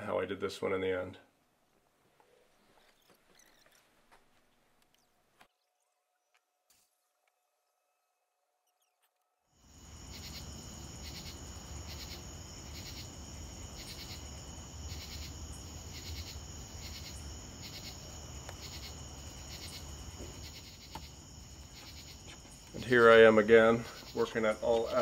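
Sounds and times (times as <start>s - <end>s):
crickets trilling: 9.6s - 25.0s
pulsed insect chirping: 9.6s - 25.0s.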